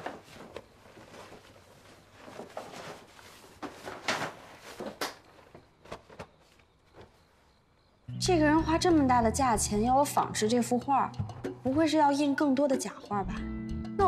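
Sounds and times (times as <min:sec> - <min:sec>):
paper bag rustling and crinkling: 0:00.0 - 0:07.4.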